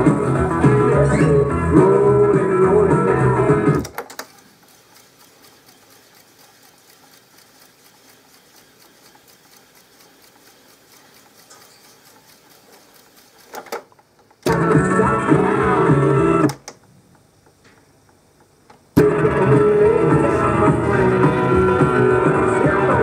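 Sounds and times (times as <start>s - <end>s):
guitar music from tape recorder: 0.0s - 3.9s, 14.5s - 16.6s, 19.0s - 23.0s
tape reels fast-winding whir: 0.0s - 13.6s
tape recorder clicks: 3.6s - 14.8s, 16.4s - 19.1s
rapid ticking of spinning reels: 3.8s - 14.5s.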